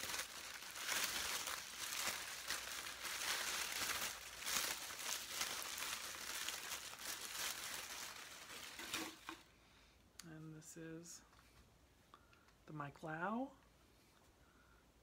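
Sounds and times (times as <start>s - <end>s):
paper crinkling and rustling: 0.0s - 9.4s.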